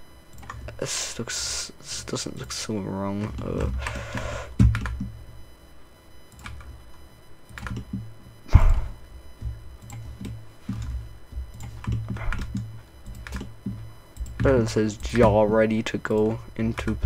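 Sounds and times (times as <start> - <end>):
keyboard typing: 0.3 - 0.7, 3.2 - 5.2, 6.3 - 6.7, 7.5 - 8.1, 9.4 - 17.0
loud thump: 8.5 - 8.9.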